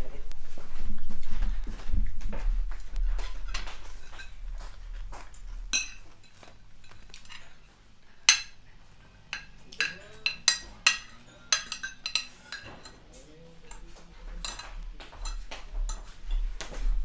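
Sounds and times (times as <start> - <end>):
cutlery clinking on plates: 3.2 - 4.7, 5.7 - 16.9.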